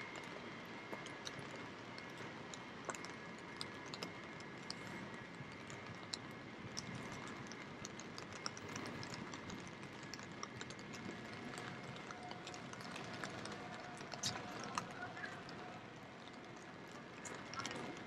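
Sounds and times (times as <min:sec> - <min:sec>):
raindrops tapping: 0:00.1 - 0:18.0
rain falling: 0:07.0 - 0:18.0.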